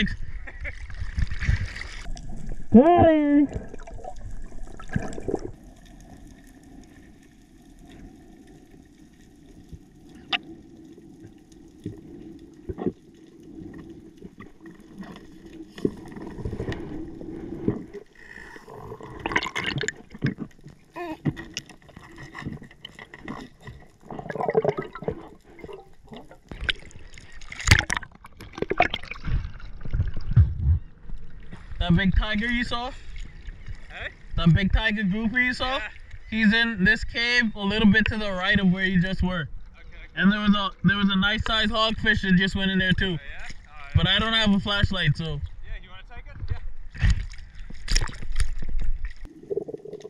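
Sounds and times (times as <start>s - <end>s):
water splashes: 0.0s - 36.6s, 46.4s - 50.0s
underwater water noise: 0.0s - 45.7s, 46.4s - 50.0s
underwater clicks and crackling: 0.6s - 31.7s, 43.0s - 44.0s, 46.3s - 50.0s
bubbling underwater: 0.7s - 31.5s, 48.0s - 50.0s.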